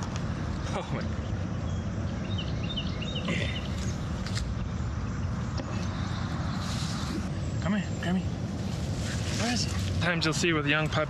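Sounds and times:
bird chirping: 0:00.4 - 0:08.7.

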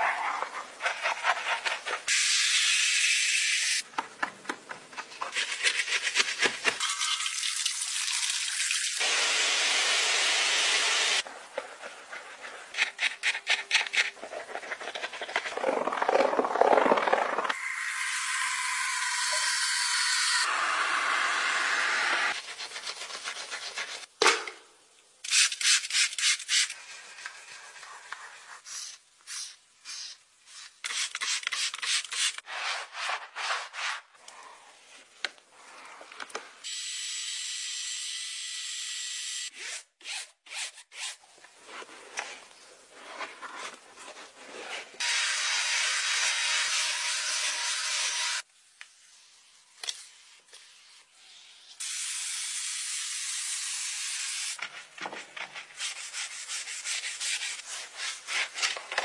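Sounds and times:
brush scrubbing: 0:00.0 - 0:02.1, 0:22.3 - 0:24.1, 0:55.5 - 0:58.7.

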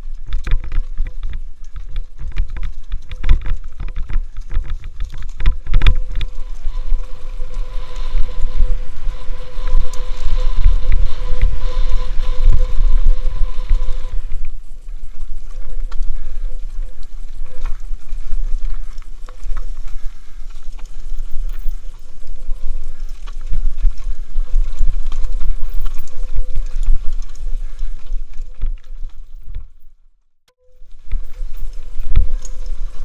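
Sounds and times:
bike rattles and knocks: 0:00.0 - 0:07.8
wind buffeting microphone: 0:00.0 - 0:29.8, 0:30.8 - 0:33.0.

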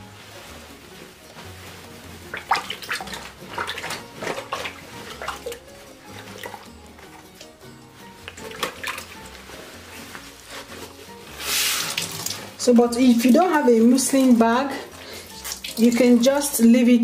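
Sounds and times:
background music with bass pulse: 0:00.0 - 0:17.0
water trickling into plastic bowl: 0:02.3 - 0:07.6, 0:11.5 - 0:16.2.

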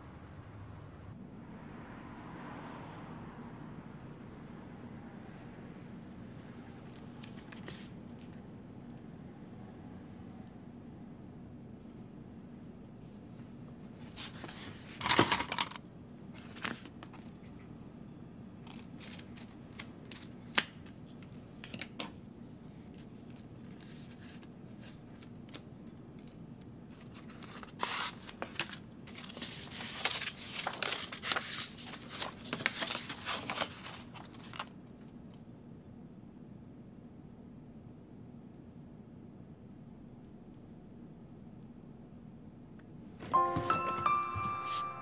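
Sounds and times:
paper rustling and crinkling: 0:07.0 - 0:08.4, 0:13.3 - 0:15.7, 0:16.3 - 0:17.7, 0:18.7 - 0:34.8, 0:43.2 - 0:45.0.

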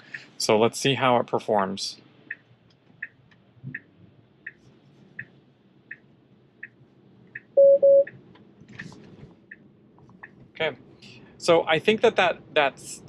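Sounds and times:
turn signal ticking: 0:02.2 - 0:10.6
double-beep warning chime: 0:07.6 - 0:08.1.

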